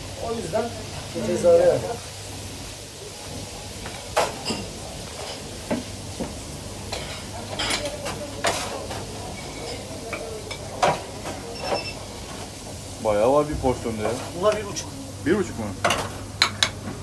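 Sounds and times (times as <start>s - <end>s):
liver deep-frying in oil: 0.0s - 17.0s
metal utensils clinking on pan: 6.9s - 12.0s.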